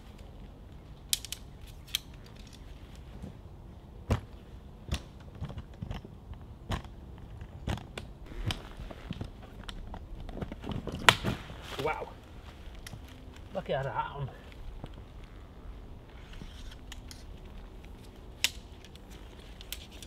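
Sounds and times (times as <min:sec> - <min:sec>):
tent poles clicking and knocking: 0:01.0 - 0:03.2, 0:16.2 - 0:20.0
canvas sagging: 0:08.2 - 0:17.8.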